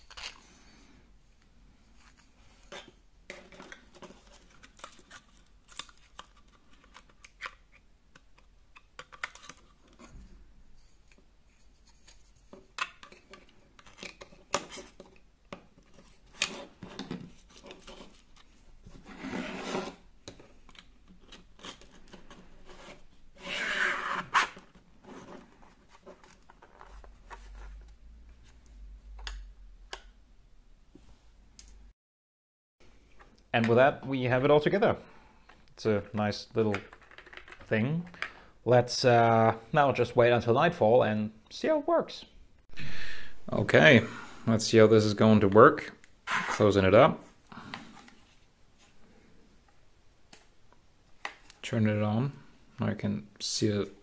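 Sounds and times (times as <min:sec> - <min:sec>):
plastic parts clicking and rubbing: 0:00.0 - 0:00.5, 0:02.0 - 0:10.2, 0:11.0 - 0:18.6, 0:36.7 - 0:38.4.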